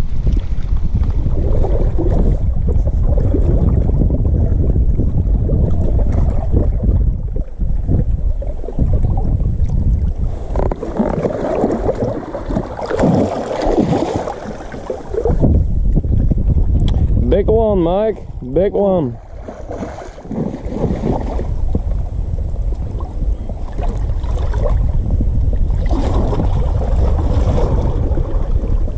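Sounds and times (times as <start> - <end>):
wind rumbling on microphone: 0.0 - 28.9
water lapping: 0.2 - 17.2, 19.0 - 22.0, 22.7 - 25.0, 25.6 - 28.9
fish thrashing and splashing: 10.5 - 15.4, 19.2 - 21.6.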